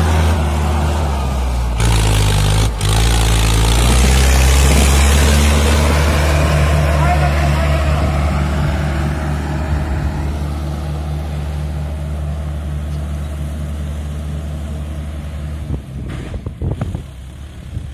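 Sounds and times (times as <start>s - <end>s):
tractor diesel engine drone: 0.0s - 17.9s
wind gusts on microphone: 15.6s - 17.9s.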